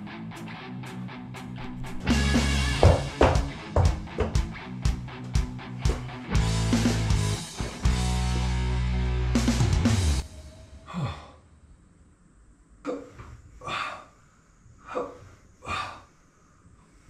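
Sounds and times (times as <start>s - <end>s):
rock music: 0.0s - 10.2s
man breathing hard: 10.8s - 11.5s, 13.0s - 17.0s
man grunting: 10.9s - 11.4s.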